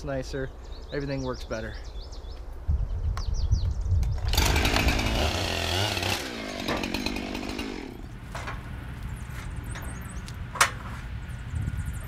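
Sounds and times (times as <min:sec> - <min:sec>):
chainsaw cutting log: 0:04.2 - 0:08.1.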